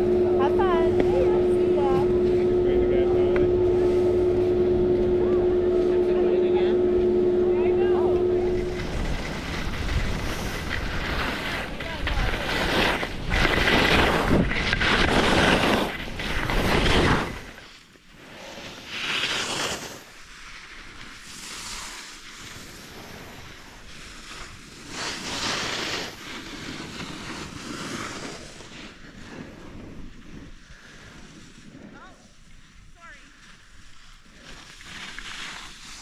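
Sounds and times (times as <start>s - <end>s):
wind rushing over microphone: 0.0s - 17.6s
skis scraping on packed snow: 0.4s - 4.5s, 7.5s - 36.0s.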